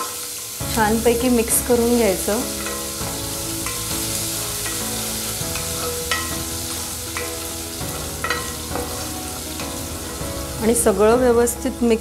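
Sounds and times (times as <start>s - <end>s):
spices sizzling in hot oil: 0.0s - 12.0s
spoon scraping and knocking pot: 8.2s - 9.0s.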